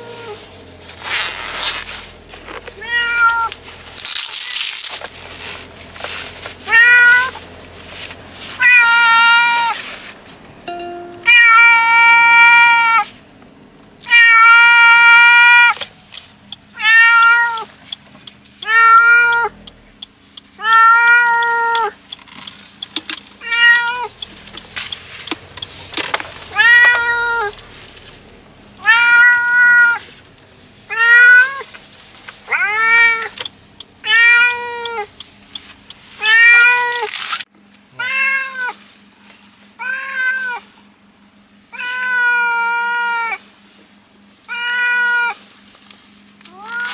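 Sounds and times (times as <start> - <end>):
cat meowing loudly: 2.8 - 3.5, 6.7 - 7.4, 8.6 - 9.8, 11.3 - 13.1, 14.1 - 15.8, 26.5 - 27.5, 28.8 - 30.0, 30.9 - 31.7, 38.0 - 38.8, 39.8 - 40.6, 41.7 - 43.4, 44.5 - 45.4, 46.5 - 46.9.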